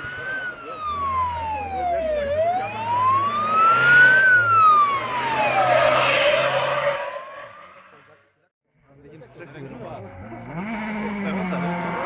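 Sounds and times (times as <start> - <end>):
car passing: 0.0 - 8.2
siren wailing: 0.0 - 8.2.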